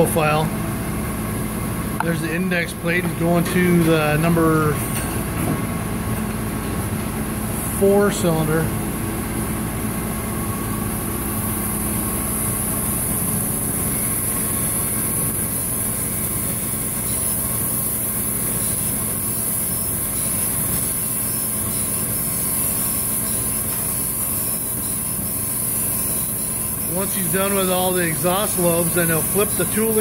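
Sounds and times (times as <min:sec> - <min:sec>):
grinding machine humming: 0:00.0 - 0:30.0.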